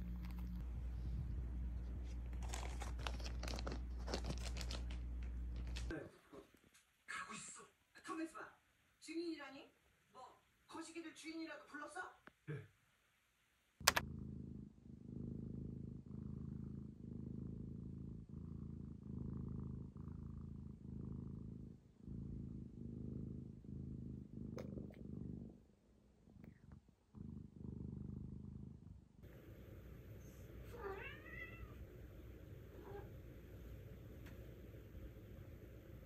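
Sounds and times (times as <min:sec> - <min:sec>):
cat purring: 0:00.0 - 0:06.7, 0:13.8 - 0:36.0.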